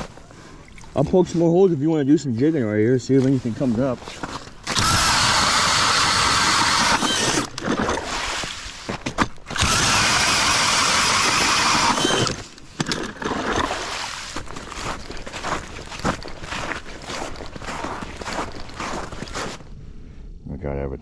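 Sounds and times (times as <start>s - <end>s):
cordless drill auger boring ice: 4.6s - 8.7s, 9.5s - 14.5s.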